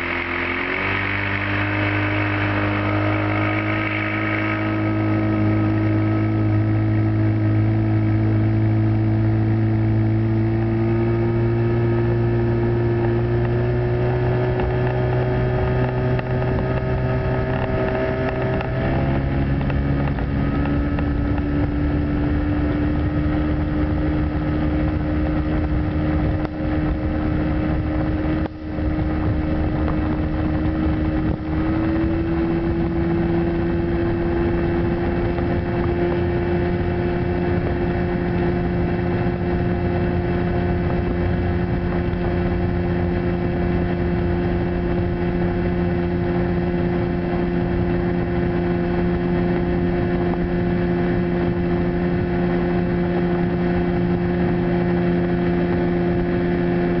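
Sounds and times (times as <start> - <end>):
wind rushing: 0.0 - 8.6
outboard motor running: 0.0 - 57.0.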